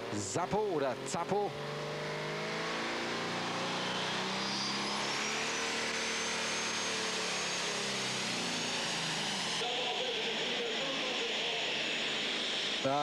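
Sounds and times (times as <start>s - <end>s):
tractor engine droning under load: 2.3s - 13.0s
faint high whine: 3.0s - 13.0s.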